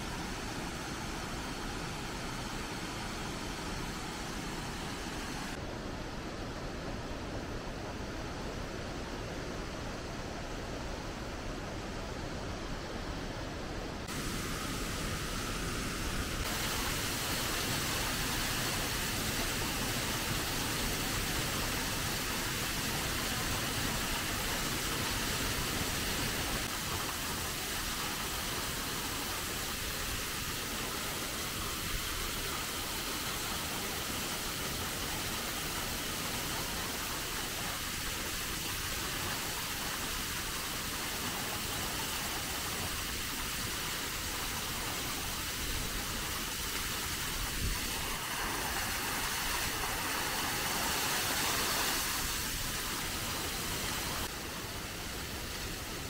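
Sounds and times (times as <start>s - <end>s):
waterfall rushing hiss: 0.0s - 56.0s.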